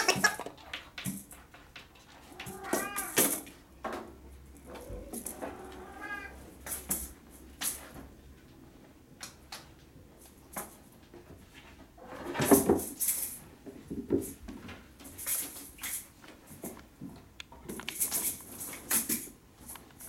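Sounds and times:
kittens bumping: 0.0 - 7.8.

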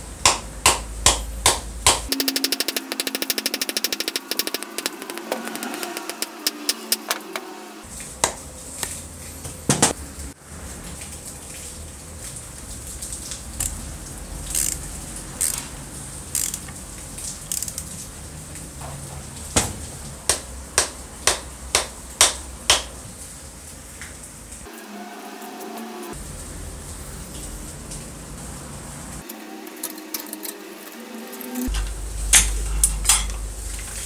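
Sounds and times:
metallic clicks of screwdriver: 14.5 - 14.8, 16.4 - 16.7.

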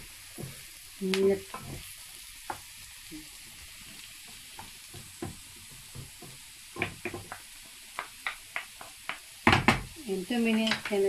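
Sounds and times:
vegetables sizzling in oil: 0.0 - 11.0
wooden spoon scraping a pan: 1.4 - 2.0.

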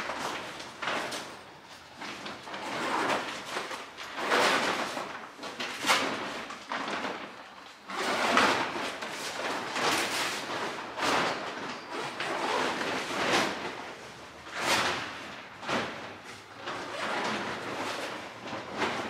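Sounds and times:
motorcycle cover rustling: 0.0 - 19.0.

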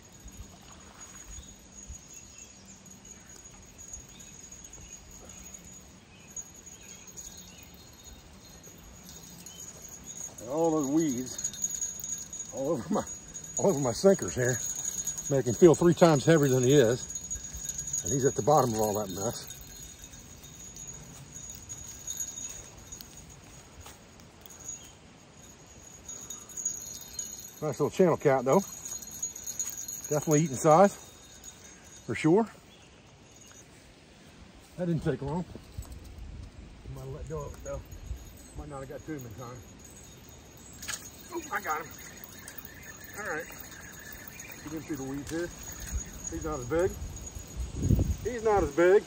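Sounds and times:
faint bird chirps: 0.0 - 23.6, 24.4 - 27.6, 28.6 - 33.9, 37.1 - 47.9
insects trilling: 0.0 - 35.9, 36.9 - 49.0.

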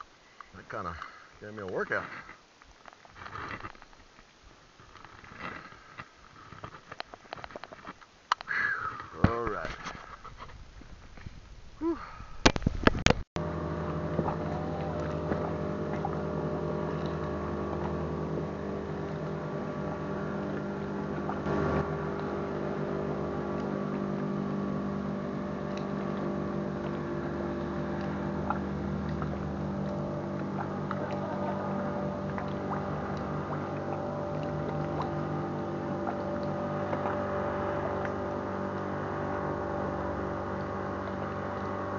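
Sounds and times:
motorboat engine droning: 13.4 - 41.9.

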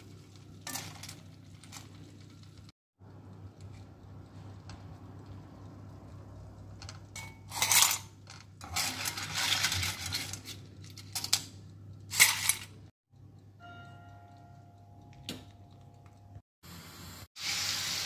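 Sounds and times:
low steady hum: 0.0 - 17.2
skimmer scraping metal pan: 7.2 - 10.7.

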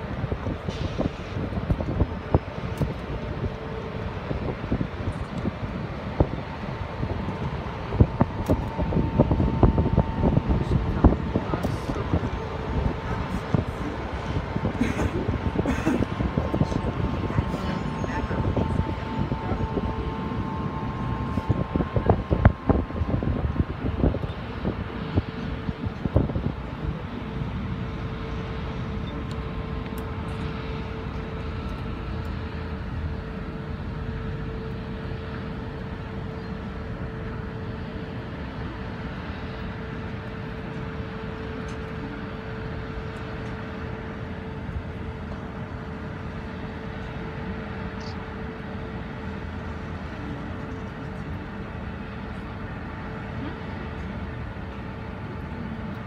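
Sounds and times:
wind noise: 0.0 - 28.8
cable car low rumble: 0.0 - 56.0
steady hum: 0.0 - 56.0.

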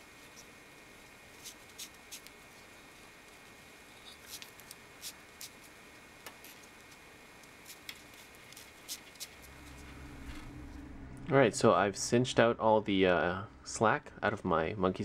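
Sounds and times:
paracord rustling and scratchy clicks: 0.1 - 10.5.

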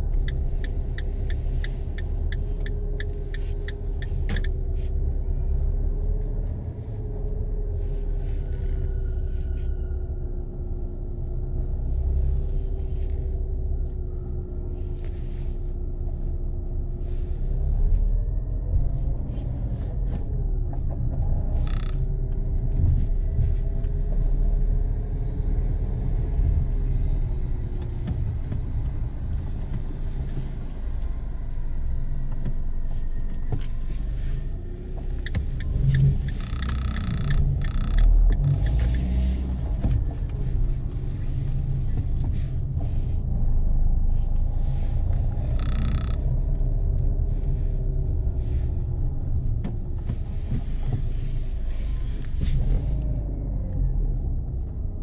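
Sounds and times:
car engine and road rumble: 0.0 - 55.0
quick even ticks: 35.2 - 39.0.

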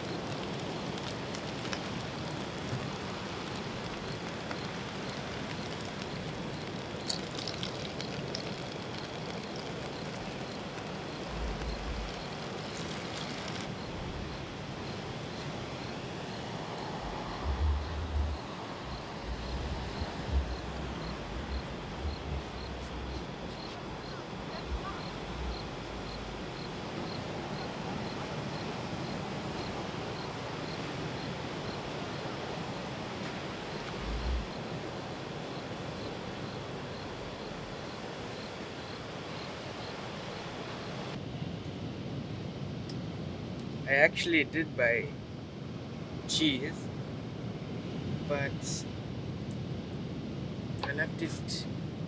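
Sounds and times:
cricket chirping: 0.0 - 41.2
steady hiss: 0.0 - 41.2, 46.3 - 46.9
ocean surf: 0.0 - 52.0
wind: 0.0 - 52.0
low rumbles on microphone: 16.9 - 26.6.

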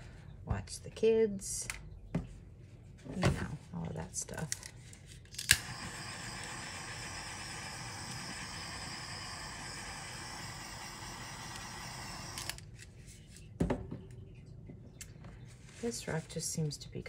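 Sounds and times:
gas torch igniting click: 5.4 - 12.6
torch flame hissing: 5.5 - 12.6.

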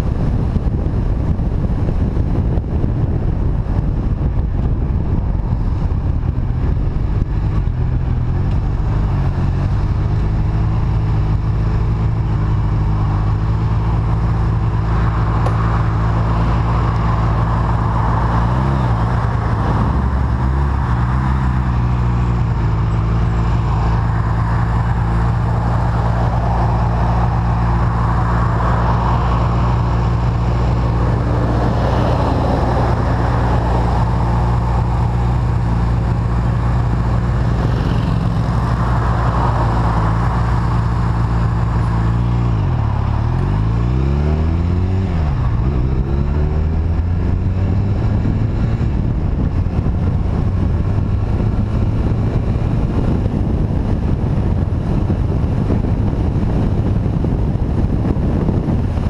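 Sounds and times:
motorcycle engine running: 0.0 - 59.0
steady rushing noise: 0.0 - 59.0.

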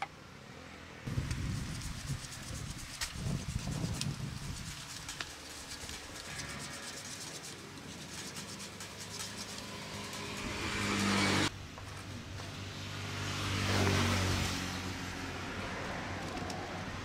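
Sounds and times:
vehicle engine humming: 0.0 - 17.0
knife shaving wood: 1.1 - 11.5.

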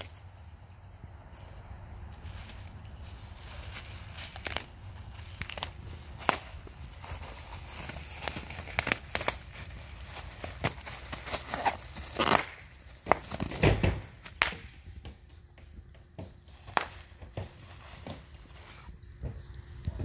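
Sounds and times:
plastic sheet crinkling: 2.4 - 14.4
bubble wrap popping: 3.2 - 14.8, 16.5 - 18.9.

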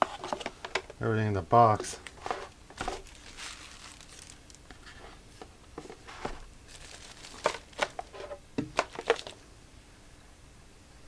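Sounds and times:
paper and cardboard rustling: 0.0 - 0.9, 1.7 - 9.4.

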